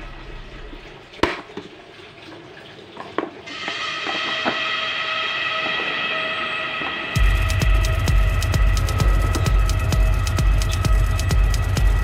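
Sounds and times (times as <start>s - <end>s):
music of sustained tones: 3.5s - 12.0s.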